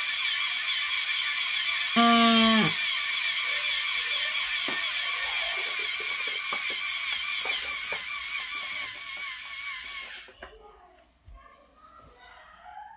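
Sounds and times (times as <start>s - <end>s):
compressor whining: 0.0s - 10.3s
bagpipe chanter note: 2.0s - 2.8s.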